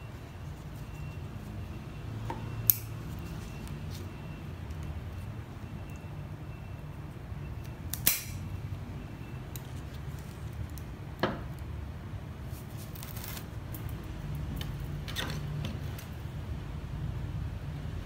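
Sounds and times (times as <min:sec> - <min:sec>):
leaves rustling: 0:12.5 - 0:14.0.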